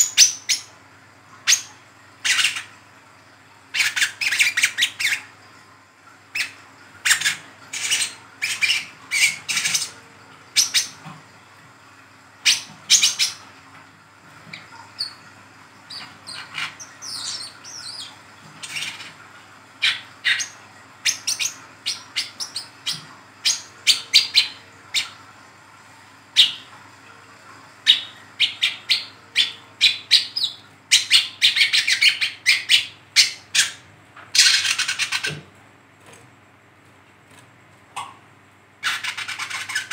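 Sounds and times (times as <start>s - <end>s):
bird twittering calls: 12.4s - 13.4s, 15.9s - 19.2s.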